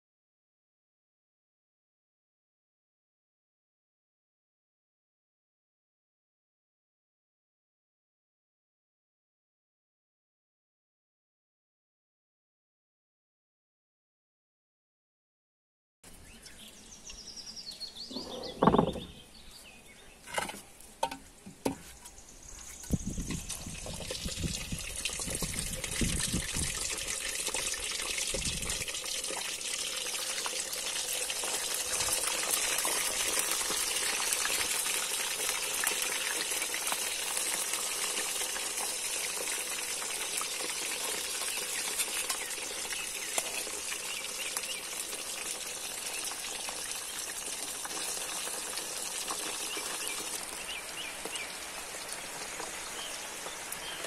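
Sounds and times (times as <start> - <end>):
fish deep-frying in oil: 22.7 - 54.0.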